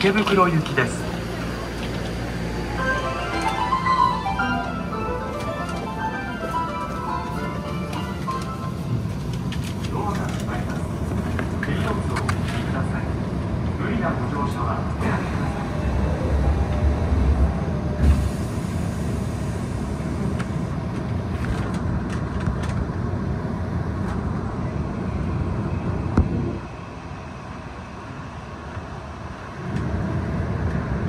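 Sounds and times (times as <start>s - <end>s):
train pulling away: 0.0s - 12.1s, 13.9s - 21.3s
subway train hum: 0.0s - 31.0s.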